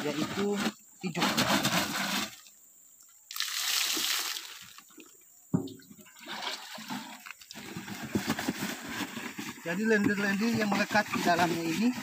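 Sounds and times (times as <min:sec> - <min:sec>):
water gushing and splashing: 0:03.3 - 0:04.8
plastic jerrycan handling: 0:05.6 - 0:12.0.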